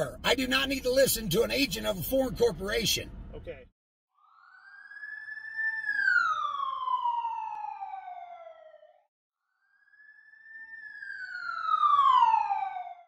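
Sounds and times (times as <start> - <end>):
siren wailing: 4.1 - 13.0.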